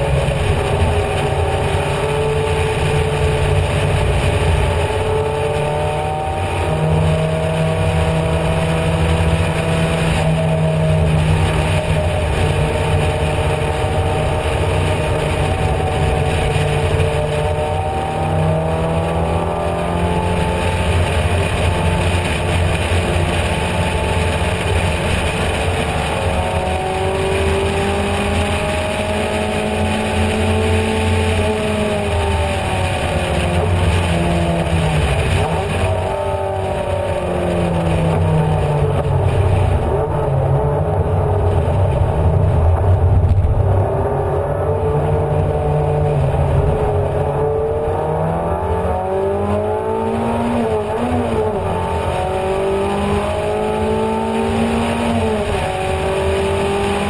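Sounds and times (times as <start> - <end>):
race car engine at high revs: 0.0 - 57.0
wind rush: 20.4 - 47.9.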